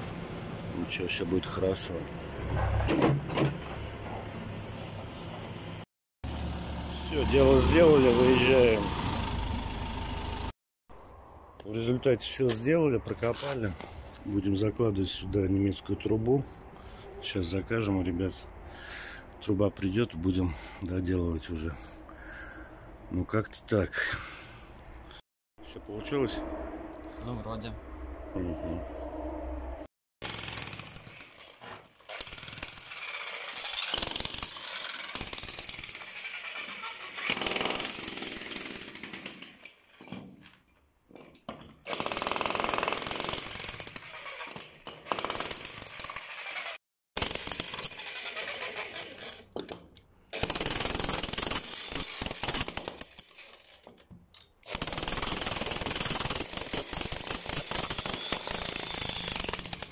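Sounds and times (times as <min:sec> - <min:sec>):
demolition hammer chiselling concrete: 0:32.2 - 0:39.5, 0:41.9 - 0:49.3, 0:50.4 - 0:53.5, 0:54.7 - 0:59.9.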